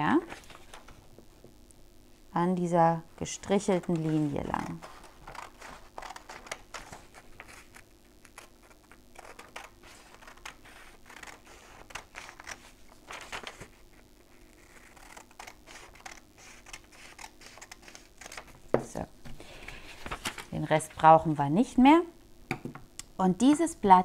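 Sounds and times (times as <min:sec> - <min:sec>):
paper crinkling: 0:00.2 - 0:01.1, 0:03.5 - 0:18.6, 0:19.3 - 0:21.1
scissors snipping paper: 0:03.8 - 0:12.6, 0:14.6 - 0:18.5.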